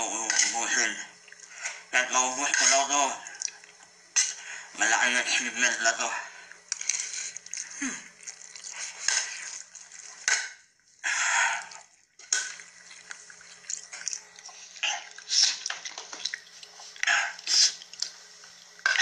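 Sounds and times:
wet slurping and chewing: 2.5 - 4.4, 6.4 - 10.4, 11.1 - 19.0
hissing breaths through lips: 14.4 - 15.7, 16.3 - 18.6.

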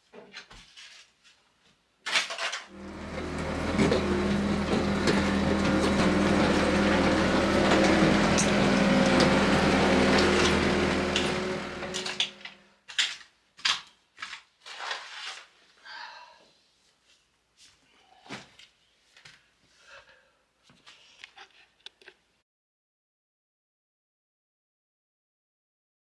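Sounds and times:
loader engine running: 2.7 - 12.6
bucket clanking and scraping: 3.0 - 12.5.

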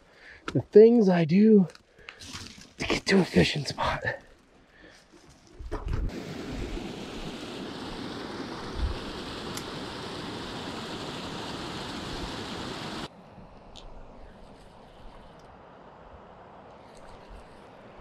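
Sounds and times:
rush of flowing water: 6.1 - 13.1.

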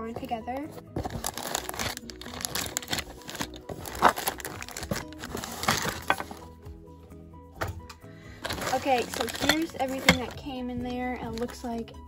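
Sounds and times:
faint background music: 0.0 - 12.0
plastic bags crinkling: 0.2 - 6.5, 8.4 - 10.6, 11.2 - 11.8.

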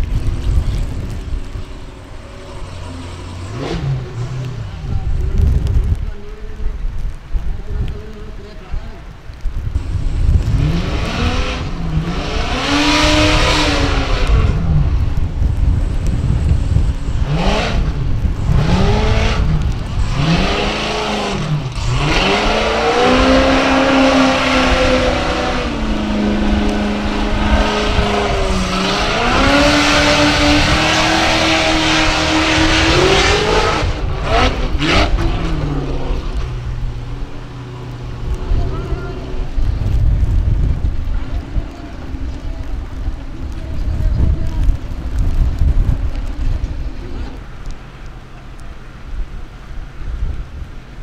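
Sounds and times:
buggy engine revving hard: 2.3 - 5.6, 9.8 - 41.0.

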